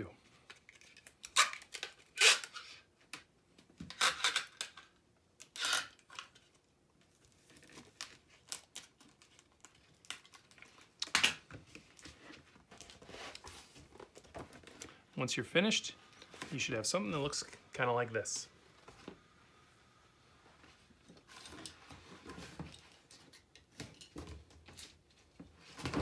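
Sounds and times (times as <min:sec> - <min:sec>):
packing tape pulled and torn: 0:00.5 - 0:03.2, 0:03.8 - 0:06.6, 0:07.5 - 0:12.1.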